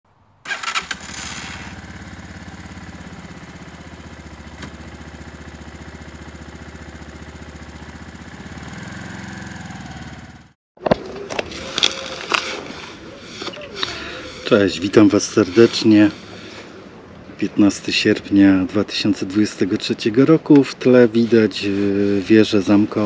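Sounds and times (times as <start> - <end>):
motorcycle engine starting and idling: 0.4 - 10.6.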